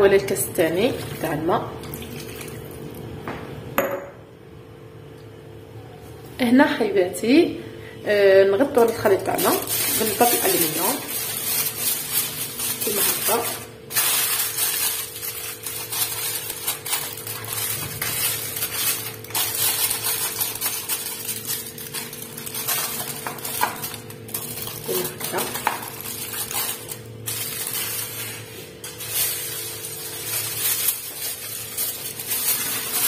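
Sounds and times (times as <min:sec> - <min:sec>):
aluminium foil crinkling: 0:08.5 - 0:33.0.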